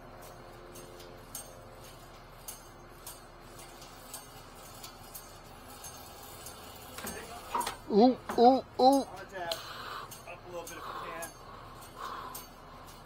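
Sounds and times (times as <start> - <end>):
quiet steady hum: 0.0 - 13.0.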